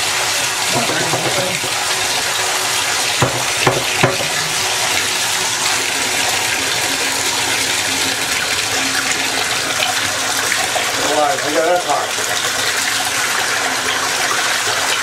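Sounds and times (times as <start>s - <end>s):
faucet water rushing: 0.0s - 15.0s
short knocks: 0.7s - 1.8s, 3.2s - 4.6s.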